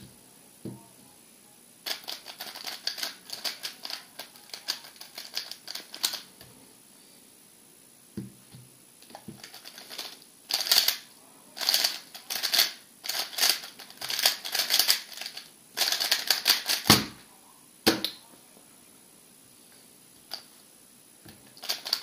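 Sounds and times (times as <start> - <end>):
rapid plastic clicking of cube: 1.9 - 6.2, 9.4 - 11.0, 11.6 - 17.0, 21.6 - 22.0.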